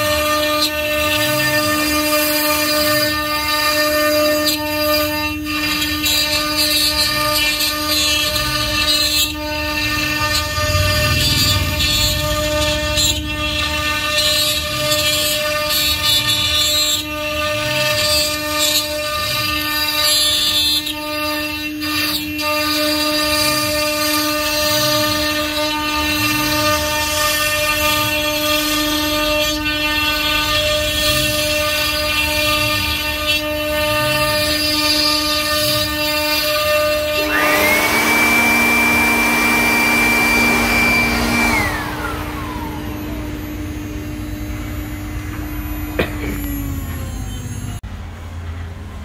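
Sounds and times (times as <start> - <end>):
motor droning whine: 8.6 - 14.8, 36.7 - 49.0.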